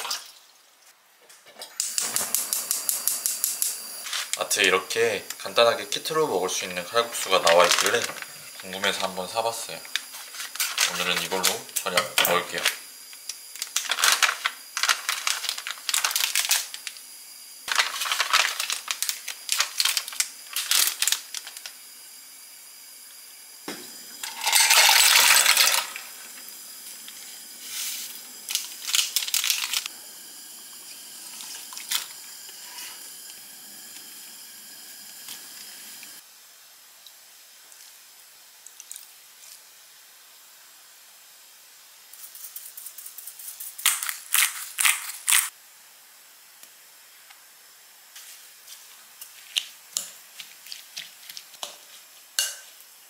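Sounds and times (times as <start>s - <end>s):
loud hiss: 1.8s - 36.4s
packet handling: 7.2s - 9.1s, 13.6s - 17.0s, 17.7s - 21.7s, 28.5s - 29.9s
small hard items clinking: 13.6s - 16.8s.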